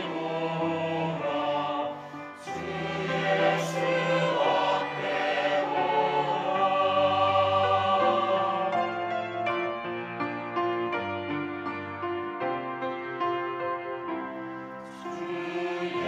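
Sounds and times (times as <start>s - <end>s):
choir singing a hymn: 0.0s - 10.4s, 14.7s - 16.0s
piano and strings accompaniment: 0.0s - 16.0s.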